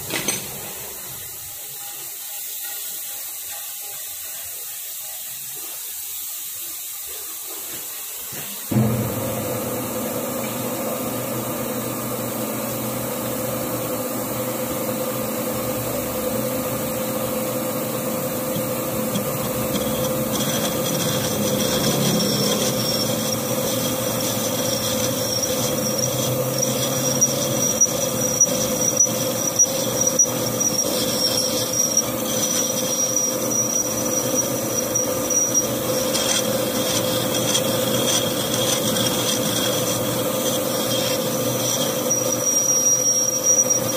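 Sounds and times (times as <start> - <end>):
metal lathe humming: 8.7 - 43.9
cutting tool squealing on steel: 18.4 - 43.9.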